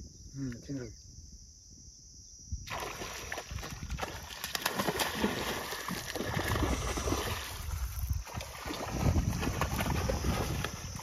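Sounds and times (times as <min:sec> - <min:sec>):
fish splashing in water: 0:02.7 - 0:11.0.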